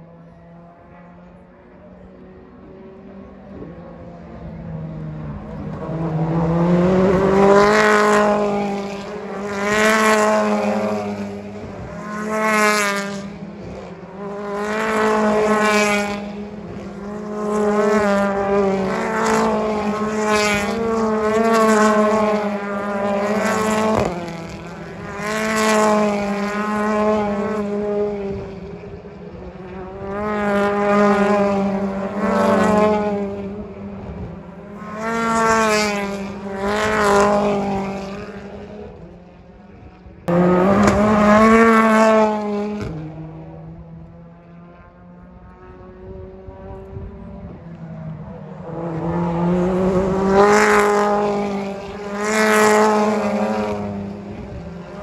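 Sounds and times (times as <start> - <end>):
race cars passing: 0.0 - 55.0.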